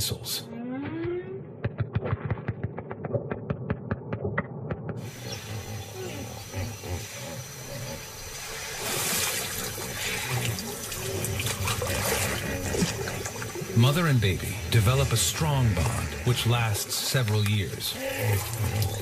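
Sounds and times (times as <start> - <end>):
water sloshing and splashing: 8.0 - 15.0, 16.9 - 19.0.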